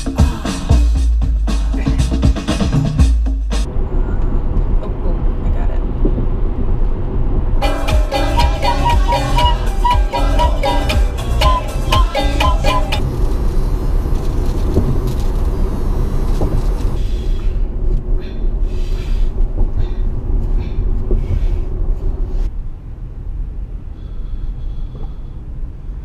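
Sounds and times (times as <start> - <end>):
road and tyre rumble in car: 3.6 - 7.7, 12.8 - 26.0
pan flute and ukulele tune: 7.6 - 13.0.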